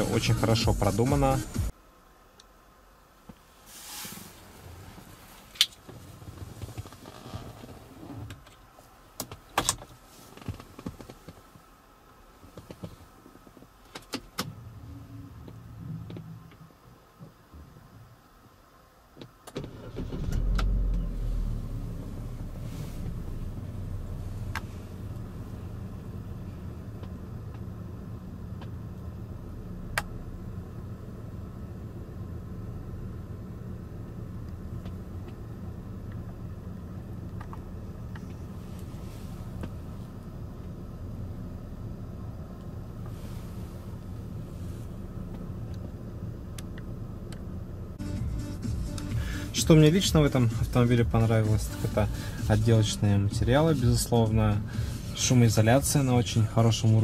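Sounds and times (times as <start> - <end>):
car engine starting and idling: 0.0 - 2.0, 19.2 - 57.0.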